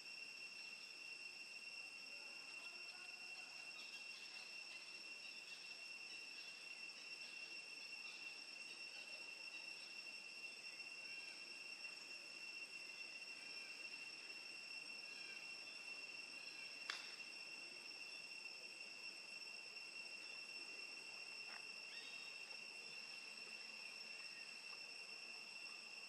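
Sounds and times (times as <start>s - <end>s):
high-pitched insect drone: 0.0s - 26.0s.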